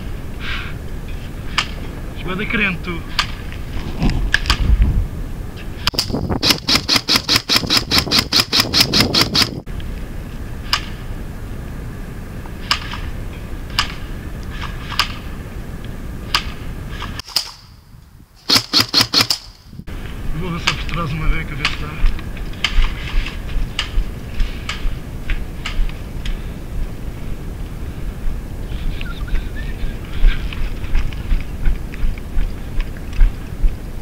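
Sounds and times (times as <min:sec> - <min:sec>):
airsoft guns firing: 0:05.9 - 0:09.6, 0:16.3 - 0:17.7, 0:18.4 - 0:19.6.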